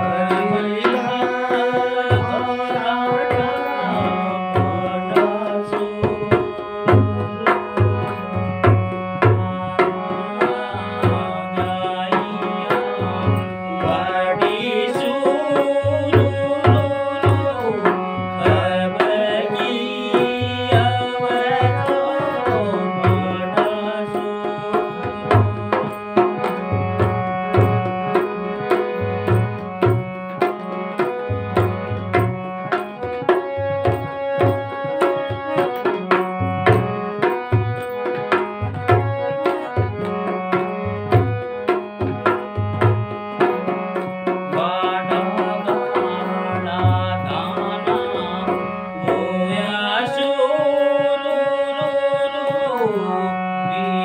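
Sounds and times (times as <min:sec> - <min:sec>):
harmonium chords: 0:00.0 - 0:54.0
man singing: 0:00.0 - 0:54.0
hand drum beat: 0:03.4 - 0:14.6, 0:24.7 - 0:49.3.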